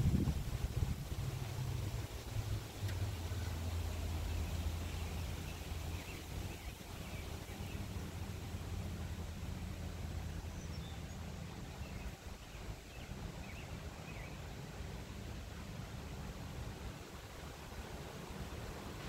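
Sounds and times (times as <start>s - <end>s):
wind blowing through trees: 0.0s - 19.0s.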